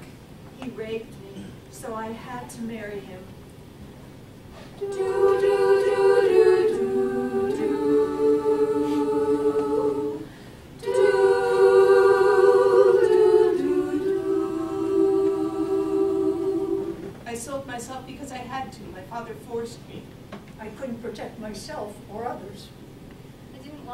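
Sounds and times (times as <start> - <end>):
women's choir singing: 4.8 - 17.2.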